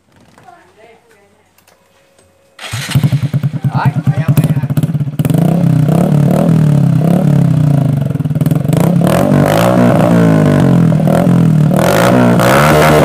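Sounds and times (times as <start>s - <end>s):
motorcycle engine idling and revving: 2.6s - 13.0s.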